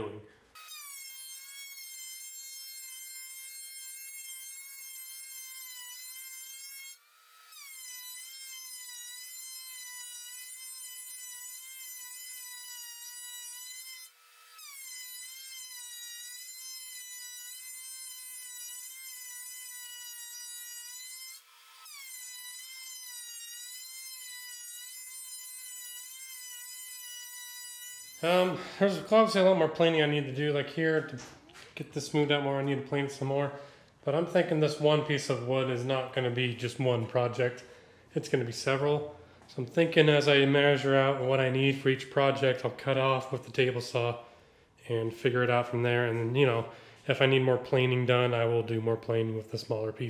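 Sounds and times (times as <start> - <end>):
thickness planer motor whine: 17.7 - 28.6.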